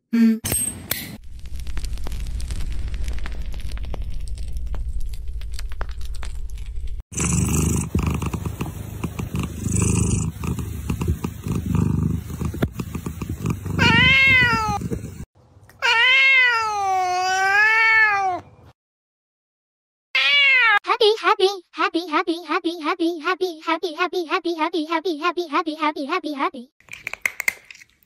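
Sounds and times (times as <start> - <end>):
cat purring: 7.1 - 15.3
cat meowing: 13.7 - 14.8, 15.8 - 18.4, 20.2 - 20.8.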